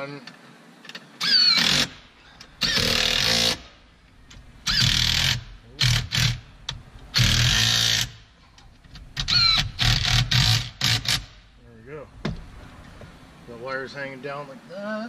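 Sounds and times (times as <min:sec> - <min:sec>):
cordless drill driving screws: 0:01.2 - 0:03.7, 0:04.6 - 0:06.4, 0:07.1 - 0:08.2, 0:09.2 - 0:11.4.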